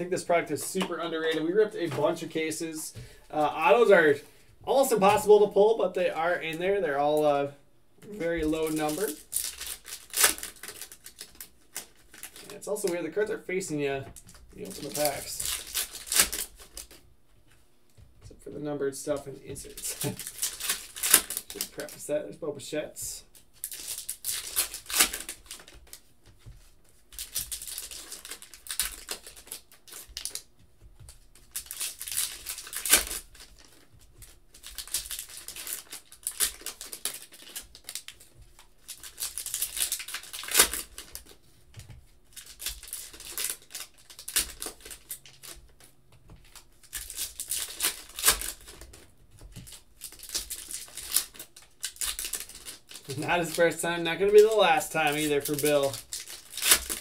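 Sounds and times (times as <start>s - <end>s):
foil card packs tearing and crinkling: 8.0s - 17.0s, 19.1s - 22.1s, 23.4s - 26.1s, 27.0s - 57.0s.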